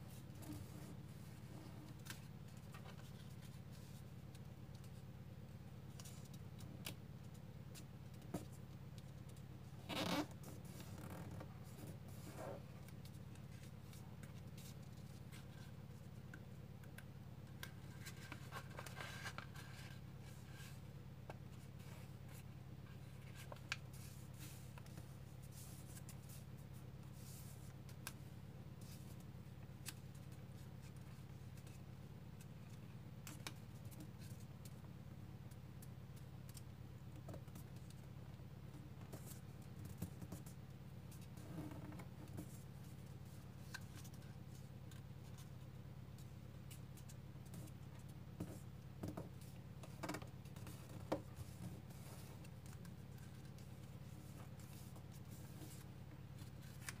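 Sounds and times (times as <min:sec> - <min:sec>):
faint low hum: 0:00.0 - 0:57.0
paper rustling and creasing: 0:05.9 - 0:16.2, 0:16.9 - 0:34.5, 0:46.2 - 0:57.0.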